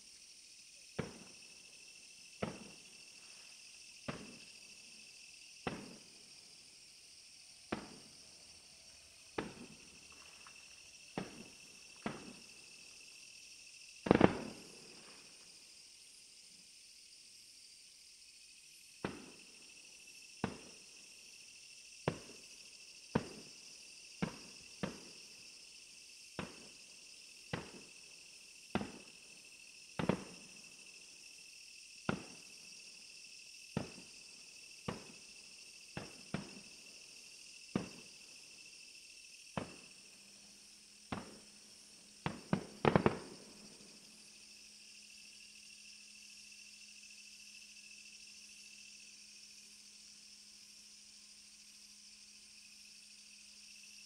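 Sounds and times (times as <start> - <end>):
insect chirring: 0.0 - 54.0
fireworks bursting: 1.0 - 1.4, 2.4 - 3.3, 4.0 - 4.6, 5.6 - 6.3, 7.6 - 8.2, 9.2 - 12.8, 14.0 - 15.4, 23.1 - 23.5, 27.5 - 27.9, 30.0 - 30.6, 32.1 - 32.6, 33.8 - 34.2, 34.8 - 35.2, 36.0 - 36.8, 37.7 - 38.2, 39.6 - 40.2, 41.1 - 43.8.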